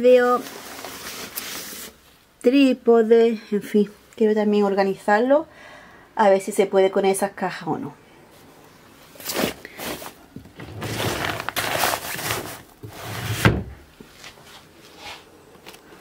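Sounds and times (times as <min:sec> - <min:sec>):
drawer rustling and sliding: 0:09.2 - 0:13.8
drawer closing thud: 0:13.3 - 0:13.8.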